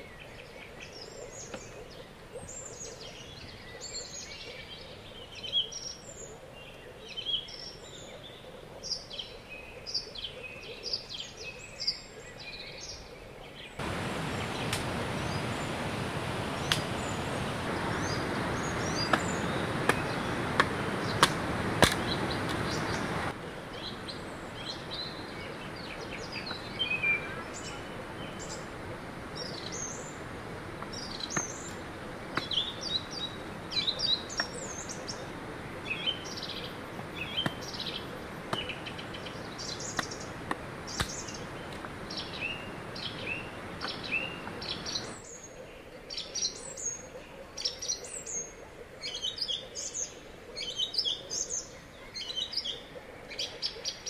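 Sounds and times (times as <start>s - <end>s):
birds chirping: 0.0s - 54.0s
river water rushing: 13.8s - 45.2s
sticks snapping and clicking: 14.7s - 14.9s, 16.7s - 16.9s, 19.1s - 23.2s, 40.0s - 42.0s.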